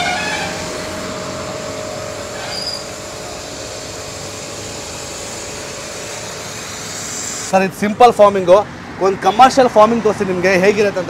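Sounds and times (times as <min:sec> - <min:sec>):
pressure washer spraying foam: 0:00.0 - 0:07.6.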